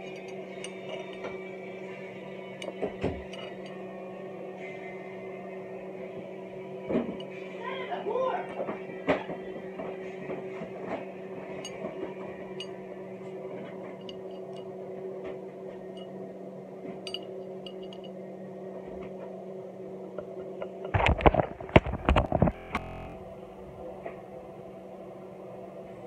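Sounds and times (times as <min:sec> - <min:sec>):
steady low hum: 0:08.5 - 0:26.0
phone bumping and rubbing: 0:21.0 - 0:23.2.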